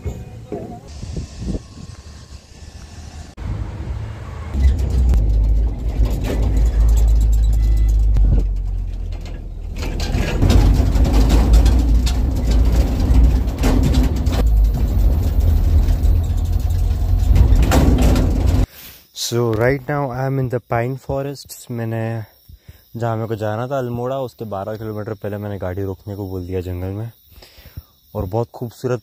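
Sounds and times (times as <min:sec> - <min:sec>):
vehicle engine and road rumble: 0:00.0 - 0:18.7
knocks and rattles: 0:04.6 - 0:18.7.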